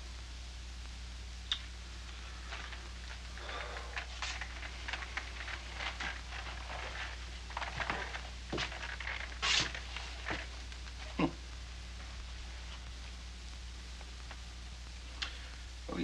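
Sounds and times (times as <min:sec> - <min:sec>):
steady low hum: 0:00.0 - 0:16.0
rustling: 0:02.0 - 0:14.5
handling noises: 0:02.2 - 0:11.0.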